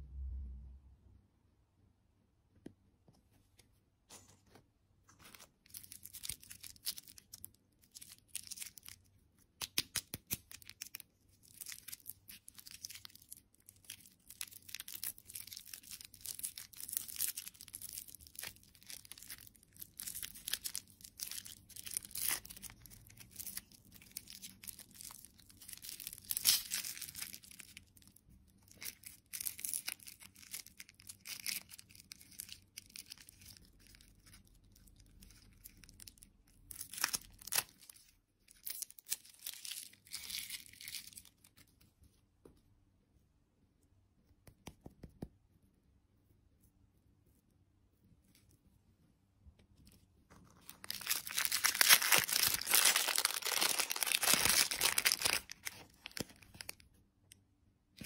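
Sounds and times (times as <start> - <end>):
plastic wrapper crinkling: 5.1 - 41.8, 49.9 - 56.9.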